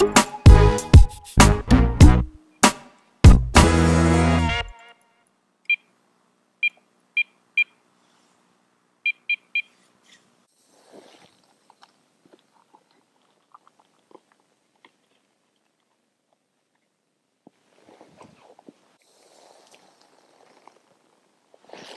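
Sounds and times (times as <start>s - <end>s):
bite alarm beeping: 9.1s - 9.7s
faint rustle: 9.7s - 21.9s.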